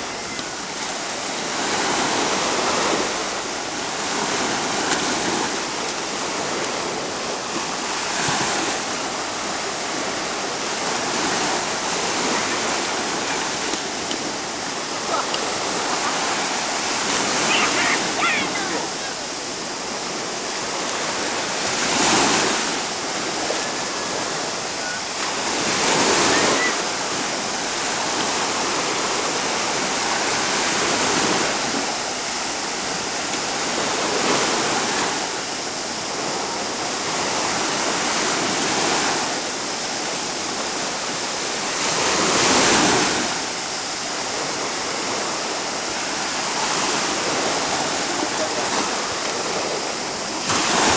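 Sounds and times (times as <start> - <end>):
sea waves breaking on beach: 0.0 - 50.9.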